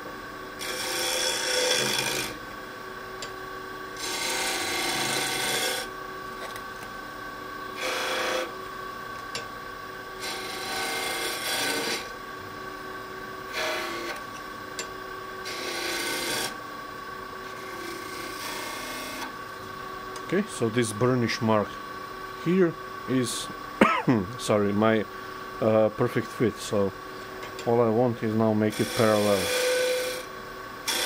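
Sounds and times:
wood lathe motor hum: 0:00.0 - 0:02.5, 0:03.2 - 0:06.7, 0:07.7 - 0:09.4, 0:10.2 - 0:12.6, 0:13.4 - 0:16.6, 0:17.3 - 0:19.4, 0:27.6 - 0:31.0
tool rasping on spinning wood: 0:00.6 - 0:02.4, 0:04.0 - 0:05.9, 0:07.8 - 0:08.5, 0:10.2 - 0:12.1, 0:13.5 - 0:14.2, 0:15.4 - 0:16.6, 0:17.6 - 0:19.3, 0:28.4 - 0:31.0.

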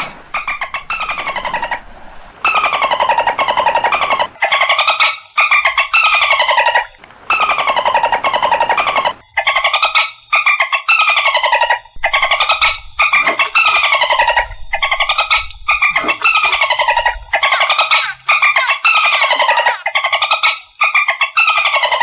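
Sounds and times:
dolphin pulsed squawks: 0:12.0 - 0:20.6.

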